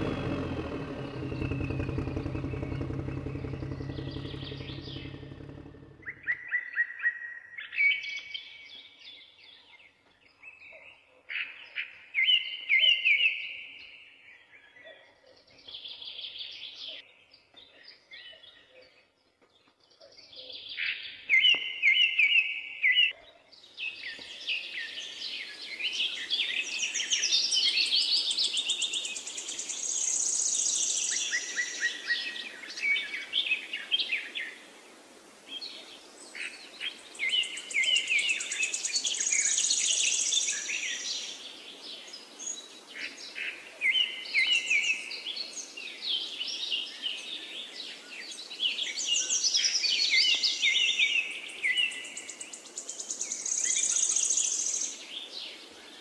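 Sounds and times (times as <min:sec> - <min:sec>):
mechanical engine hum: 0:00.0 - 0:06.3
birds chirping: 0:00.0 - 0:06.6.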